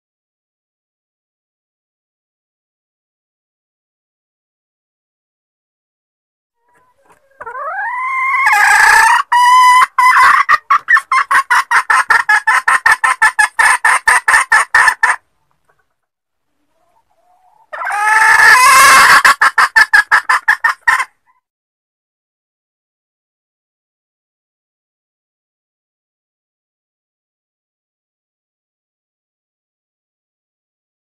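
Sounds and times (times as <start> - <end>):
hen calling and clucking: 6.6 - 21.4.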